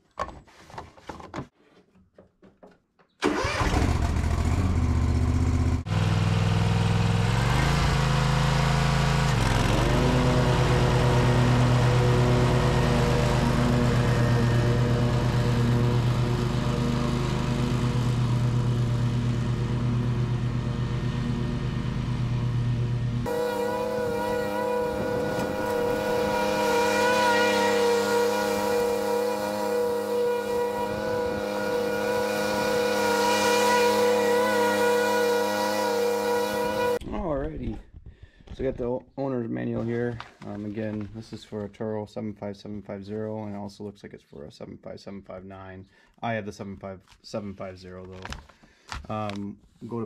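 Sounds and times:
lawn mower engine revving: 3.2 - 37.0.

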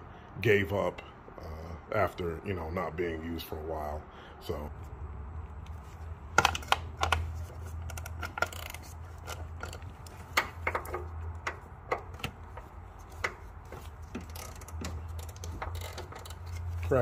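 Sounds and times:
low steady hum: 0.0 - 17.0
hand ratchet clicking: 6.4 - 17.0
metal tools knocking: 7.8 - 17.0.

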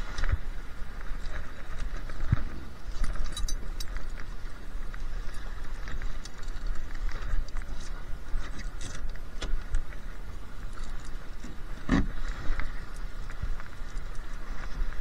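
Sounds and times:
water rushing along hull: 0.0 - 15.0
boat fittings clicking and rattling: 1.2 - 4.3, 5.2 - 10.0.

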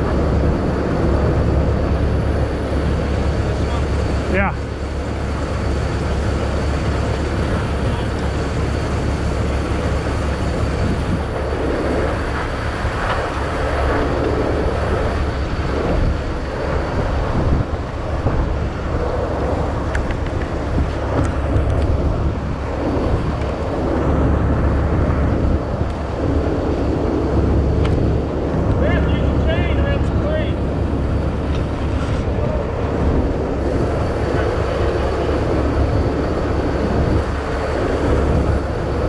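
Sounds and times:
diesel engine rumble: 0.0 - 39.0.

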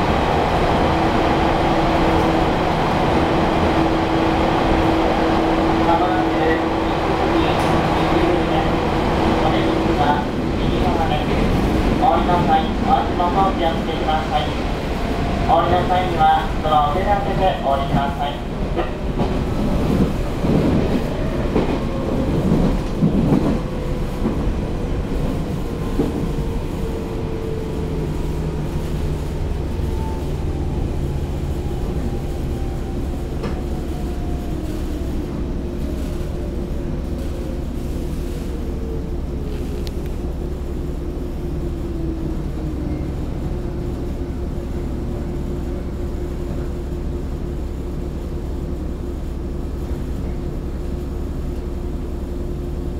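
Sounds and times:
low train running rumble: 0.0 - 52.9.

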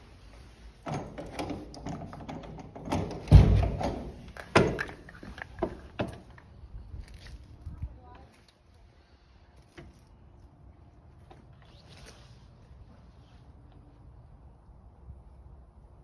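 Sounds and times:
door lock clicks and knocks: 0.9 - 5.0
heavy door thump: 2.8 - 4.8.

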